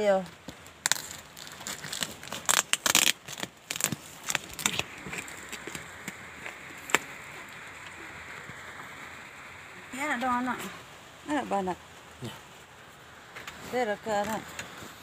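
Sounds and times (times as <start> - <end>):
packing tape and cardboard tearing: 0.4 - 8.0.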